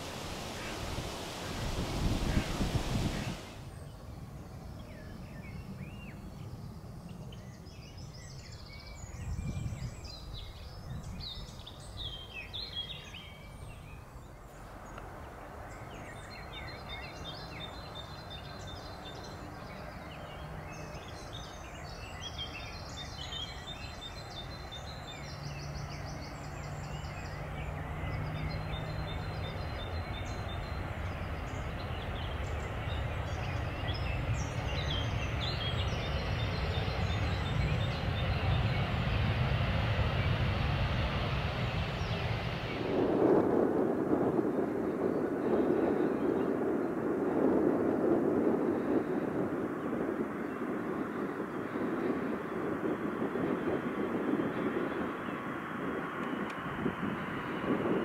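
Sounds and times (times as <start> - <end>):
small birds chirping: 0.0 - 43.0
jet airliner approaching: 0.0 - 58.0
low rumble: 30.2 - 54.3.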